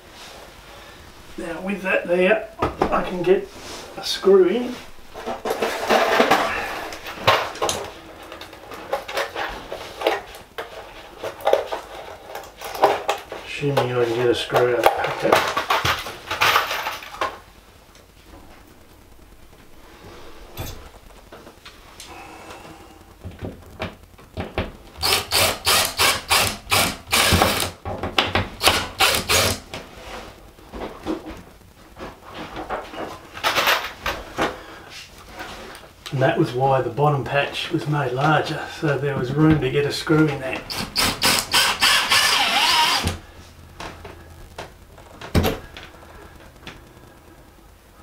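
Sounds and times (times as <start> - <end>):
screws clicking and rattling: 28.6 - 29.6, 40.7 - 43.1.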